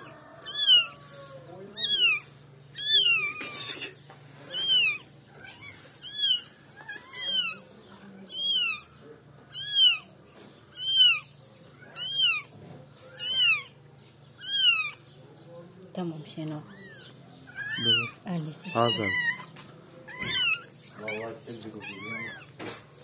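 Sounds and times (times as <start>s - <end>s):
kitten mewing: 0.0s - 8.9s, 9.5s - 10.1s, 10.7s - 12.5s, 13.1s - 13.8s, 14.4s - 15.0s, 16.6s - 19.5s, 20.1s - 22.7s.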